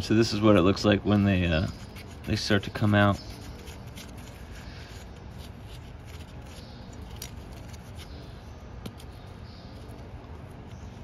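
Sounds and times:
metallic clicks and scrapes: 0:01.6 - 0:11.0.

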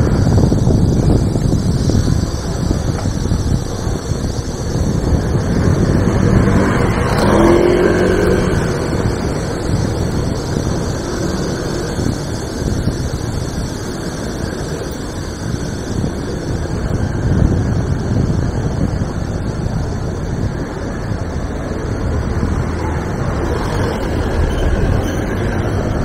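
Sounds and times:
traffic rumble: 0:00.0 - 0:26.0
motorcycle passing: 0:05.0 - 0:12.4, 0:21.2 - 0:26.0.

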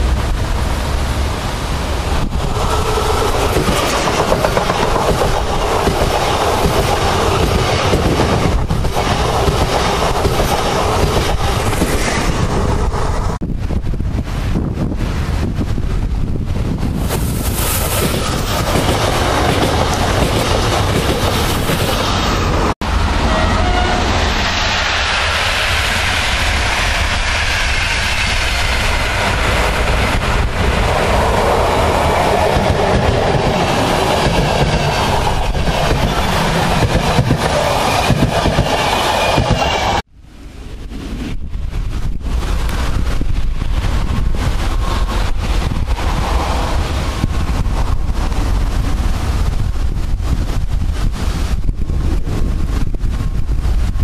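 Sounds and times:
electric train approaching: 0:00.0 - 0:13.4, 0:17.0 - 0:41.5
train wheels clacking over rails: 0:02.4 - 0:12.8, 0:17.7 - 0:22.2, 0:26.0 - 0:40.1.

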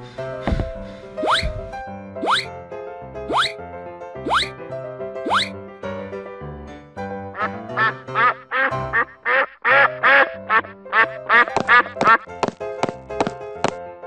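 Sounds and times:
background music: 0:00.0 - 0:14.0
duck quacking: 0:05.3 - 0:05.5, 0:07.4 - 0:12.3.

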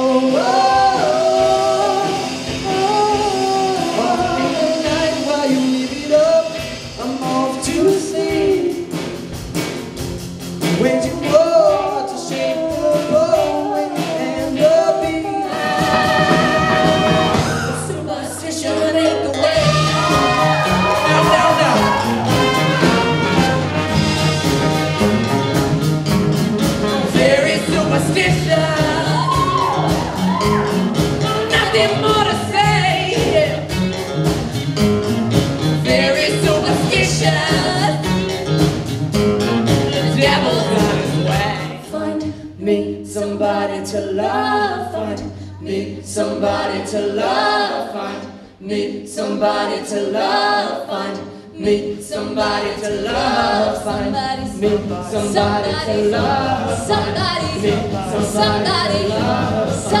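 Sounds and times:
bass guitar: 0:00.0 - 0:43.1, 0:51.7 - 1:00.0
drums: 0:00.0 - 1:00.0
singers performing: 0:00.0 - 1:00.0
horns: 0:14.0 - 0:41.8.

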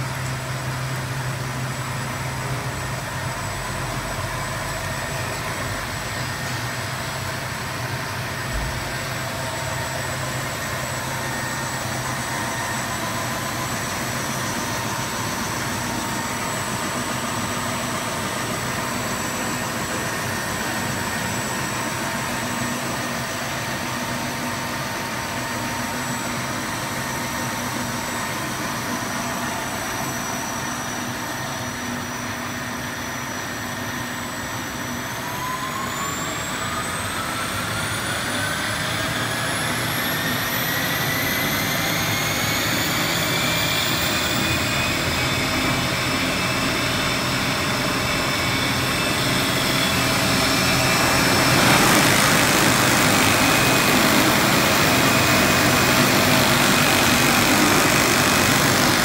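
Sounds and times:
machine belts and rollers running: 0:00.0 - 0:59.0
machine hum: 0:43.6 - 0:59.0.

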